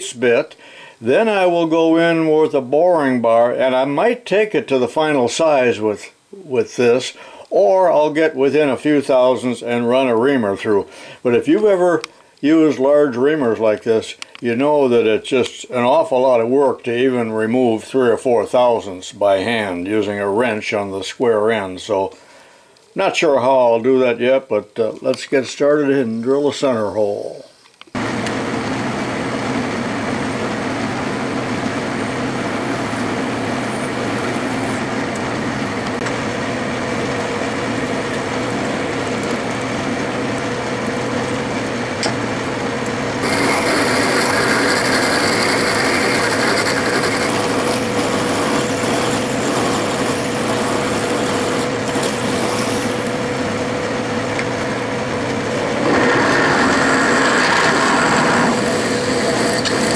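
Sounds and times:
metal lathe humming: 28.0s - 59.9s
drill cutting into metal: 43.2s - 53.2s, 55.8s - 59.9s.

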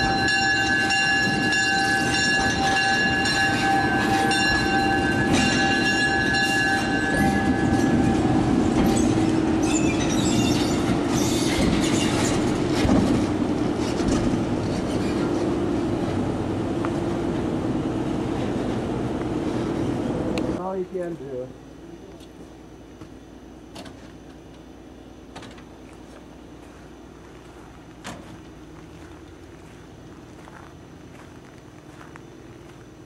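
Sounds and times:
steel wheels squealing: 0.0s - 15.5s
wheels rumbling over rails: 0.0s - 20.7s.

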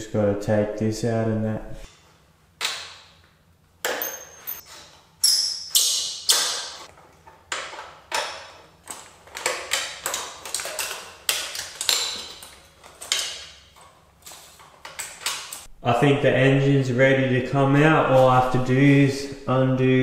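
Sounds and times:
metal tools clinking: 3.9s - 5.8s.

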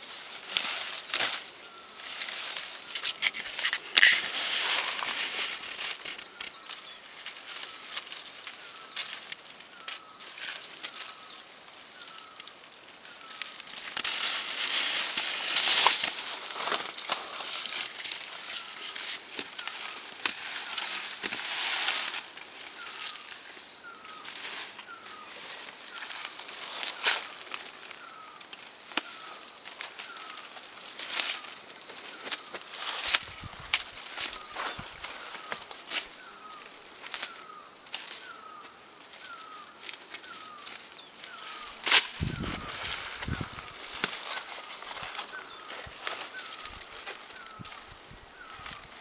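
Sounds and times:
rustling: 0.1s - 11.4s, 12.0s - 49.0s
clicks and crackles: 2.9s - 11.1s.

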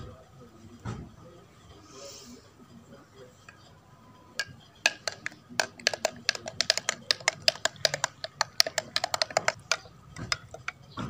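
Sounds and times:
spoon clinking against glass jug: 4.4s - 10.8s.

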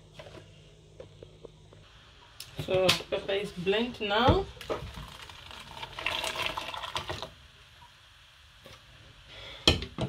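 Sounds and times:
thick puree pouring into a pot: 4.6s - 7.4s.

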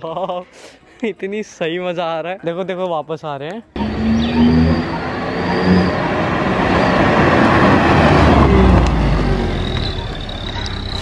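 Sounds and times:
car engine revving: 3.8s - 11.0s
road noise: 3.8s - 11.0s
thin high exhaust whistle: 3.8s - 11.0s.

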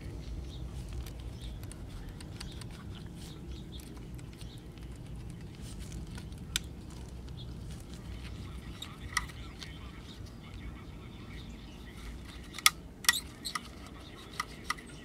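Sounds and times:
radio low hum: 6.3s - 15.0s.

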